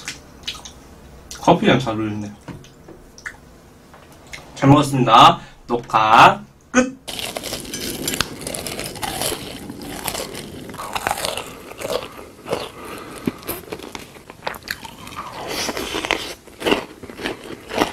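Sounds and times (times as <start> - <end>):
chewing crisp food: 7.1 - 17.9.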